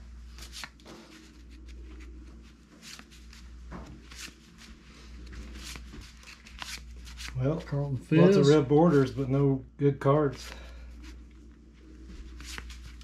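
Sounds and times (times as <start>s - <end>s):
cards sliding and flicking: 0.3s - 2.1s, 2.7s - 4.8s, 5.5s - 7.4s, 12.3s - 13.0s.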